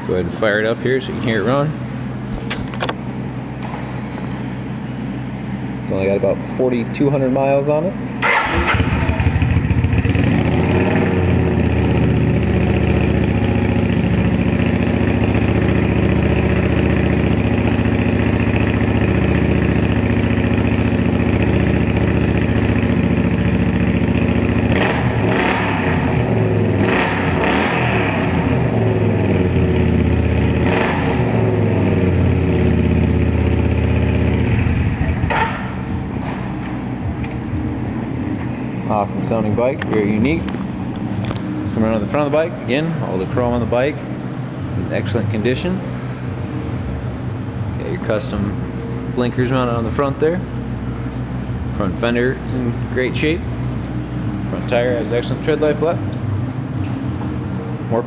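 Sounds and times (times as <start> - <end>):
motorcycle engine revving: 8.2 - 37.8
motorcycle engine idling: 8.6 - 25.4, 28.6 - 36.0.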